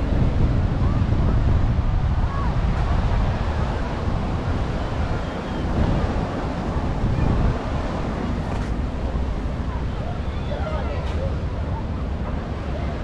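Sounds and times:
surf breaking on beach: 0:00.0 - 0:13.0
wind buffeting microphone: 0:00.0 - 0:13.0.

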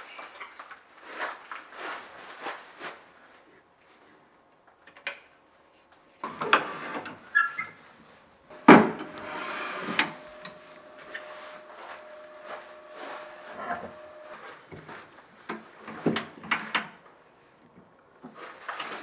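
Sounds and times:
faint hum: 0:05.5 - 0:18.2.

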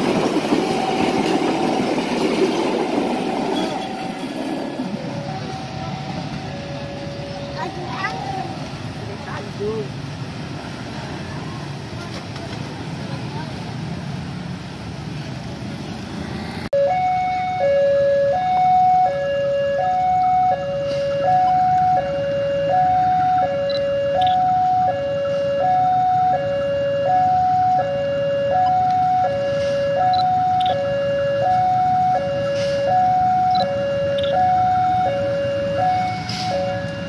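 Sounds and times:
road traffic: 0:00.0 - 0:37.0
two-tone level-crossing alarm: 0:16.8 - 0:37.0.

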